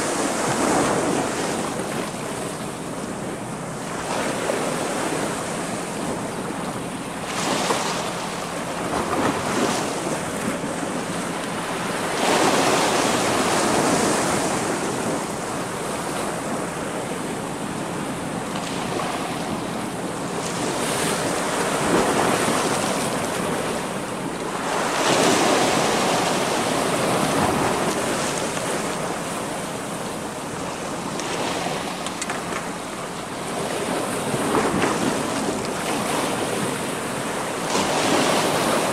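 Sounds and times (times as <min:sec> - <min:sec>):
waves breaking on rocks: 0:24.4 - 0:38.9.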